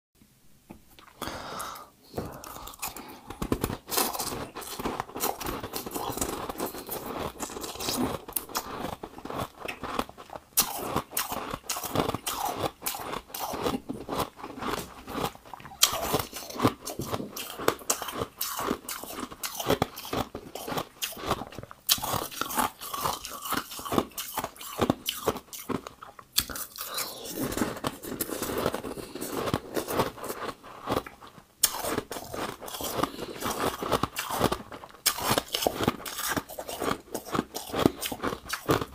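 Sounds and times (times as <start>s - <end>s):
crunching ice balls: 2.4s - 38.9s.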